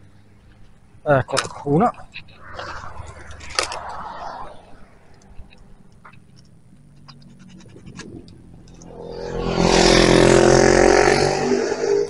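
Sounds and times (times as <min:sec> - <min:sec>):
car driving past: 0:02.0 - 0:06.0, 0:08.8 - 0:12.0.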